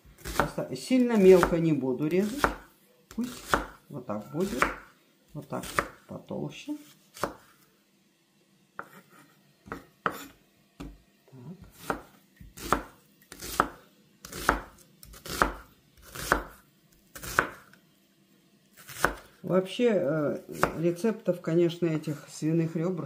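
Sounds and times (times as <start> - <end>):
knife slicing through onion: 0.0 - 4.9, 5.6 - 6.1, 6.8 - 7.6, 8.8 - 10.4, 11.6 - 17.8, 18.7 - 19.4, 20.4 - 20.8.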